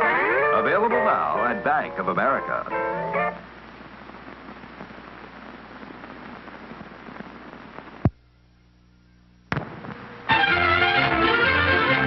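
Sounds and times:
music: 0.0s - 3.5s, 10.3s - 12.0s
faint hum: 0.0s - 11.1s
film soundtrack crackle and hiss: 0.0s - 12.0s
sharp loud pop: 9.5s - 10.0s.

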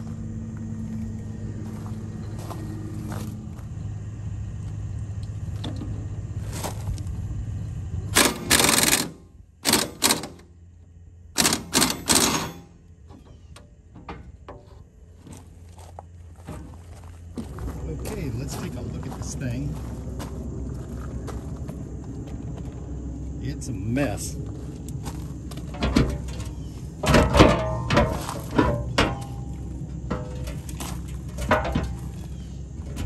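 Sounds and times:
engine running steadily: 0.0s - 33.0s
impact wrench rattling: 8.2s - 10.4s, 11.4s - 12.8s.

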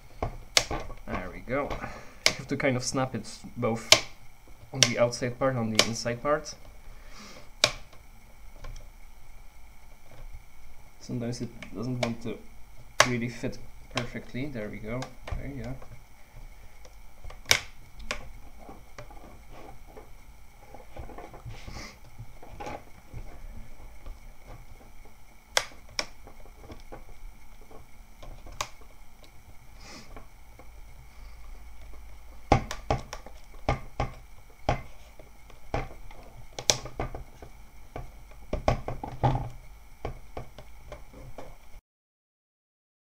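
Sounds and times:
sharp plastic clicks: 3.8s - 5.0s, 7.6s - 8.0s, 16.8s - 18.3s, 25.5s - 29.3s, 31.8s - 34.8s.

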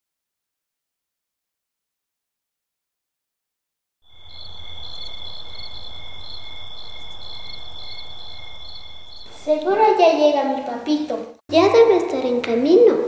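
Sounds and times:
crickets chirping: 4.0s - 10.0s.

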